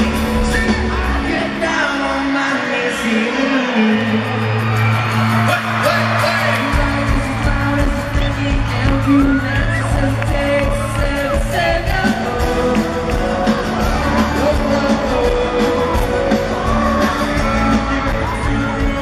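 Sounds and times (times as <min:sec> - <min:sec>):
person singing: 0:00.0 - 0:04.7, 0:05.9 - 0:19.0
fans whooping and screaming: 0:00.0 - 0:19.0
live pop band playing: 0:00.0 - 0:19.0
drum beat: 0:06.5 - 0:19.0.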